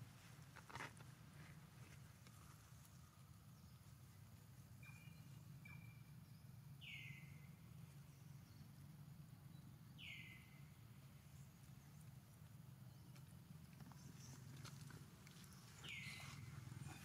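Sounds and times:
faint low outdoor hum: 0:00.0 - 0:17.0
bird calling: 0:15.3 - 0:17.0.

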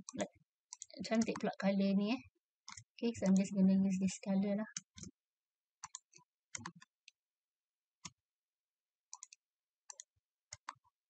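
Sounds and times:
computer mouse clicking: 0:00.0 - 0:01.6, 0:02.7 - 0:03.6, 0:05.8 - 0:06.9, 0:09.1 - 0:10.9.

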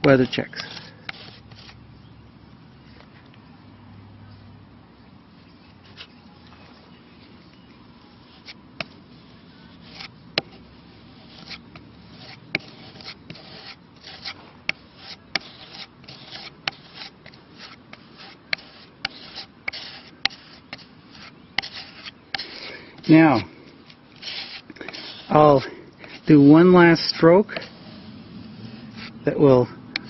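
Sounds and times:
putty knife scraping on wood: 0:00.2 - 0:01.8, 0:08.4 - 0:29.4.

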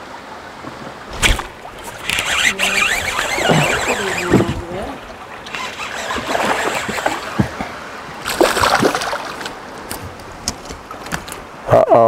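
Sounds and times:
fish splashing in water: 0:01.1 - 0:09.7.

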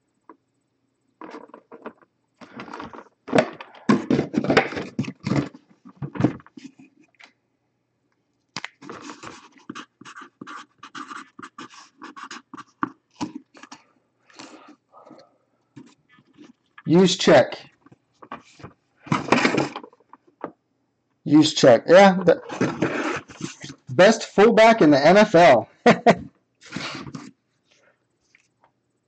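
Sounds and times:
cardboard scraping and rustling: 0:01.2 - 0:06.8, 0:08.8 - 0:13.8, 0:18.2 - 0:20.0, 0:22.3 - 0:23.8.

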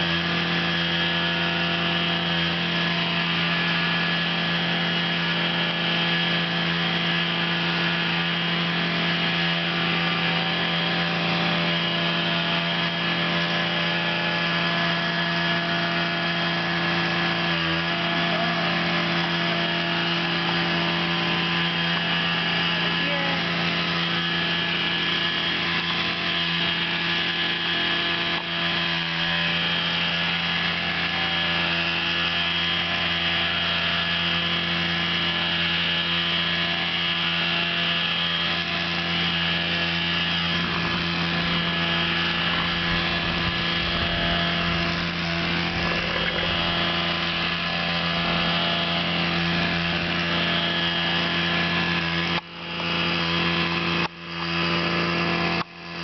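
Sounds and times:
steady machine hum: 0:16.0 - 0:55.6.

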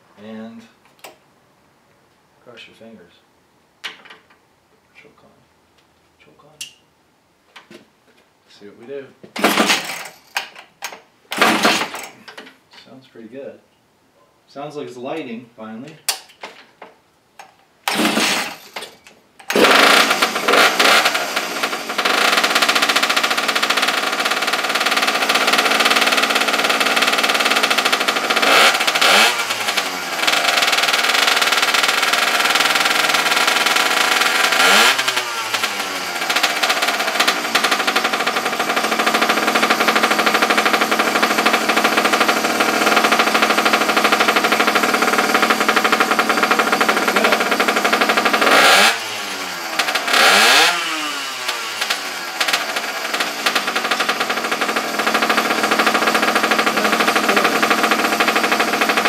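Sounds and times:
small two-stroke engine running: 0:09.4 - 0:10.2, 0:11.4 - 0:12.2, 0:17.9 - 0:18.8, 0:19.5 - 0:59.0.

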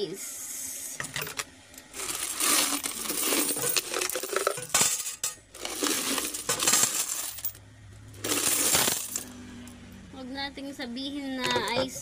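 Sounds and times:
coins rattling in a plastic jar: 0:01.1 - 0:07.6, 0:08.2 - 0:09.3.

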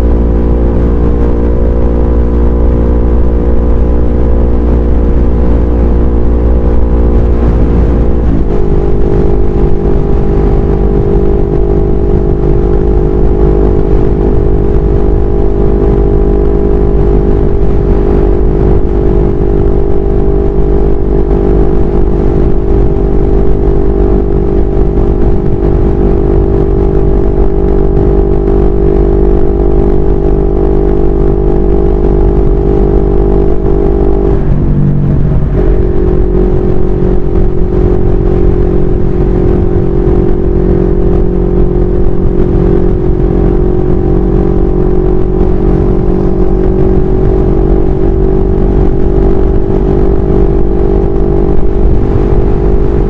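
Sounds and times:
motorcycle engine running: 0:00.0 - 0:53.0
wind buffeting microphone: 0:33.4 - 0:43.9.

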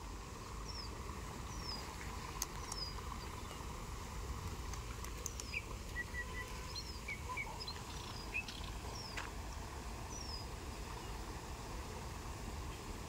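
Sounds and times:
small birds chirping: 0:00.4 - 0:03.7, 0:04.7 - 0:09.4, 0:10.1 - 0:11.2.

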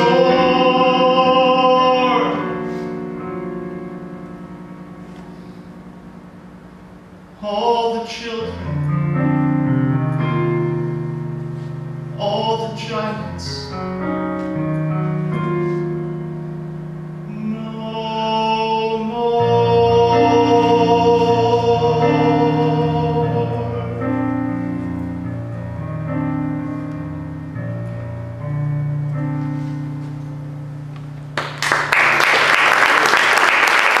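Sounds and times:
digital keyboard chords: 0:00.0 - 0:07.6, 0:08.5 - 0:17.7, 0:19.3 - 0:31.4
audience applause: 0:31.4 - 0:34.0.

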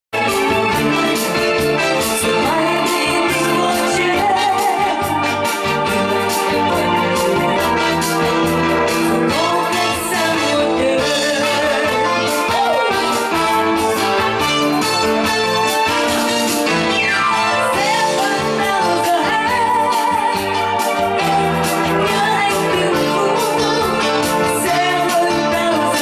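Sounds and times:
live band playing: 0:00.2 - 0:26.0
woman singing into microphone: 0:02.2 - 0:05.3, 0:09.3 - 0:13.4, 0:17.7 - 0:26.0.

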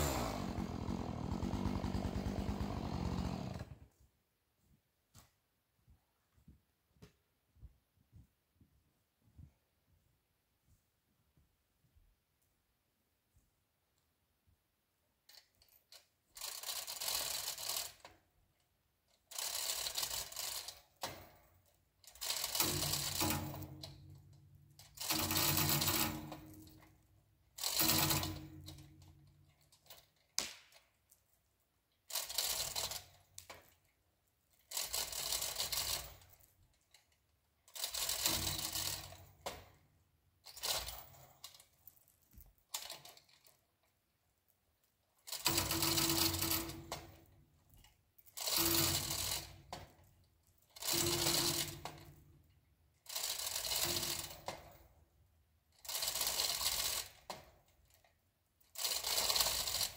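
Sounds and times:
chain hoist ratchet clatter: 0:00.0 - 0:03.8, 0:15.3 - 0:18.3, 0:19.1 - 0:31.3, 0:31.9 - 0:39.8, 0:40.4 - 0:44.0, 0:44.8 - 0:59.9.

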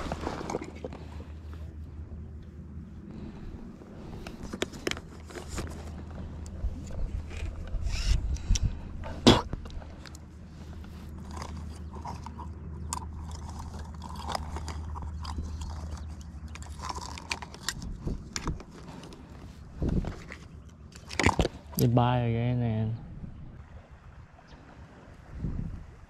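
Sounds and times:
steady low rumble: 0:00.0 - 0:26.0
light clicks and rustles: 0:04.0 - 0:21.8.

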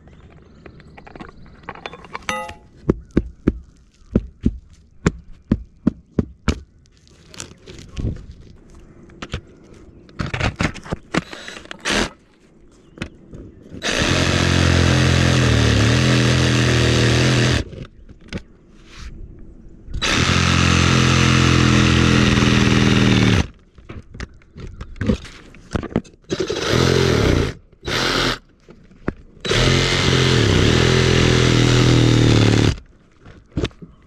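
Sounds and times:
reciprocating saw cutting: 0:11.3 - 0:12.2, 0:13.8 - 0:17.8, 0:20.0 - 0:23.5, 0:26.3 - 0:28.4, 0:29.4 - 0:32.8.

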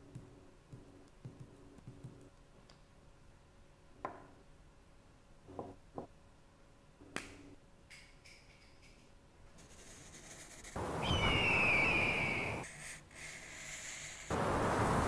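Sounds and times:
marker tapping on paper: 0:00.2 - 0:02.3
marker squeaking across paper: 0:09.6 - 0:10.8, 0:12.6 - 0:14.3.

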